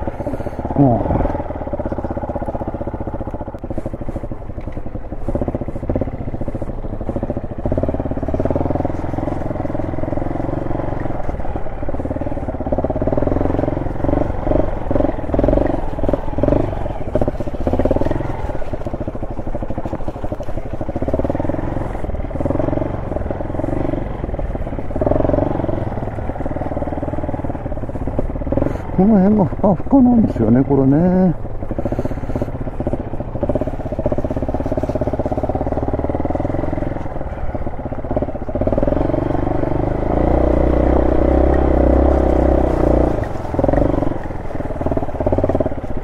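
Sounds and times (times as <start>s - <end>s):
motorcycle engine revving: 0.0s - 46.0s.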